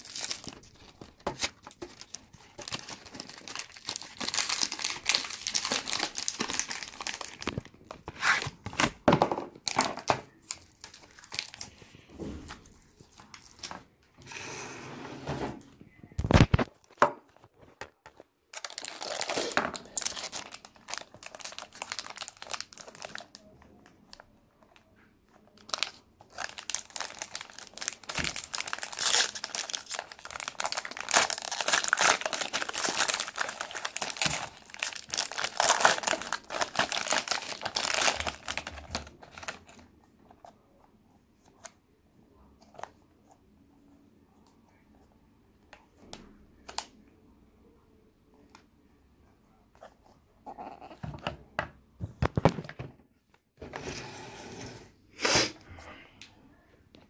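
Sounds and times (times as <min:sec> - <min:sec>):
foil pouch crinkling: 0:00.0 - 0:07.8, 0:18.5 - 0:23.4, 0:25.6 - 0:39.7.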